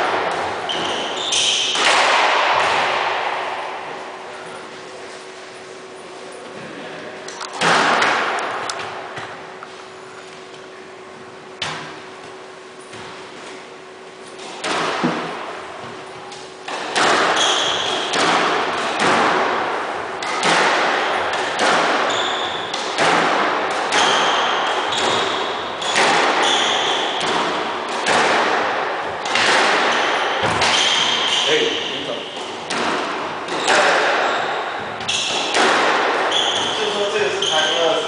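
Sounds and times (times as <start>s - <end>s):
squash ball hitting racquets and walls: 0.0s - 6.0s, 6.6s - 10.0s, 11.4s - 38.0s
sneakers squeaking on hardwood floor: 0.3s - 1.9s, 17.1s - 18.2s, 21.0s - 22.8s, 23.9s - 27.6s, 29.3s - 32.8s, 33.5s - 38.0s.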